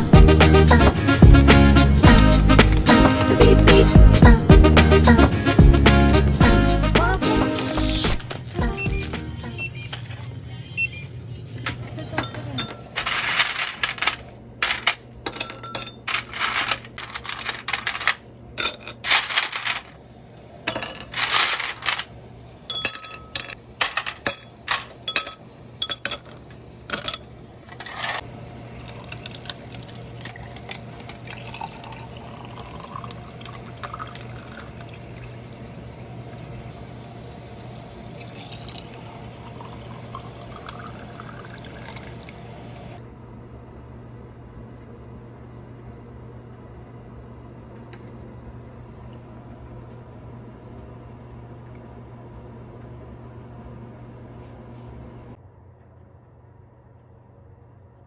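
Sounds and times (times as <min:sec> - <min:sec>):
ice cubes clinking into glasses: 0:12.2 - 0:19.9, 0:20.7 - 0:22.1, 0:22.7 - 0:27.2, 0:27.8 - 0:35.4, 0:38.2 - 0:42.3
water pouring over ice: 0:28.5 - 0:35.6, 0:38.1 - 0:42.4.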